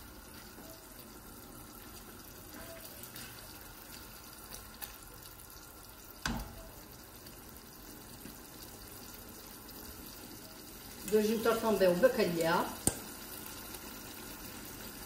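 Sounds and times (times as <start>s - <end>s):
sauce sizzling in a frying pan: 0.0s - 15.0s.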